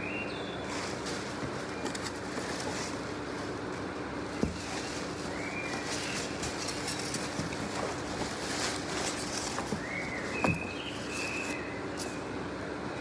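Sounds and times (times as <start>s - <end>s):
plastic wrapping rustling: 4.3s - 11.6s.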